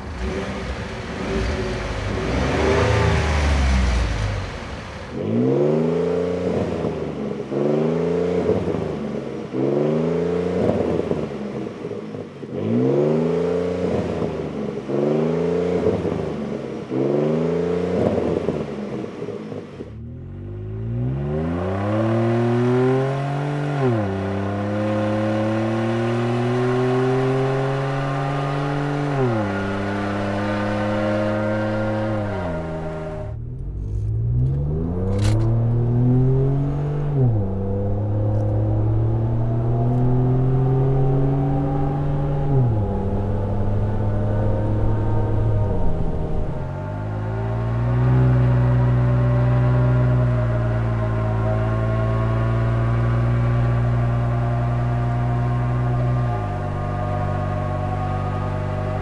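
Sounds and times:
truck engine accelerating: 0.0s - 11.8s, 12.6s - 59.0s
truck engine free-revving: 19.9s - 59.0s.

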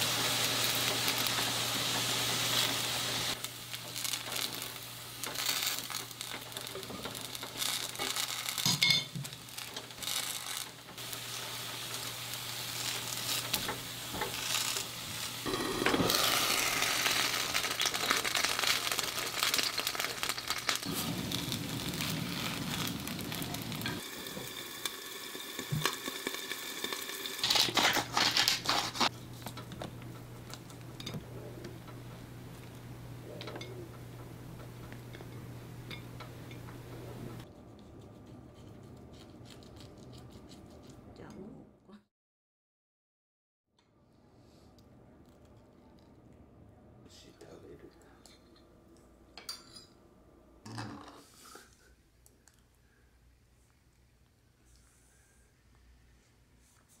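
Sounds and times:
food sizzling in frying pan: 0.0s - 31.2s
stirring and rustling: 34.6s - 41.2s.

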